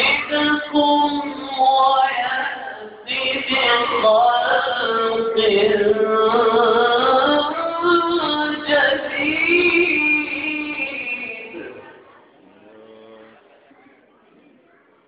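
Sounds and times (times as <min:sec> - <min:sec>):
man chanting into a microphone: 0:00.0 - 0:11.9.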